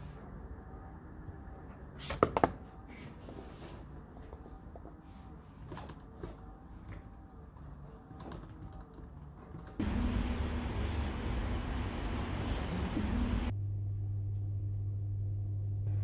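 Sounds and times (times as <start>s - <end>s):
typing on keyboard: 6.8s - 9.8s
city street traffic: 9.7s - 13.5s.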